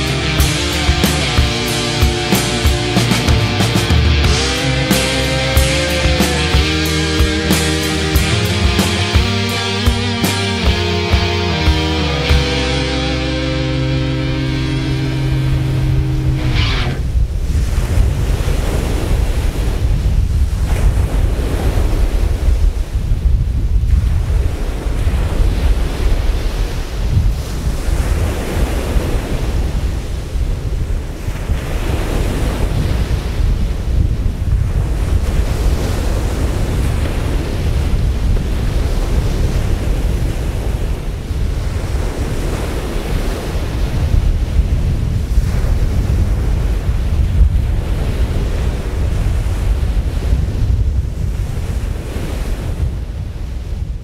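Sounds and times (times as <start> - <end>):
surf and water spray: 0.0 - 54.0
wind buffeting microphone: 10.6 - 54.0.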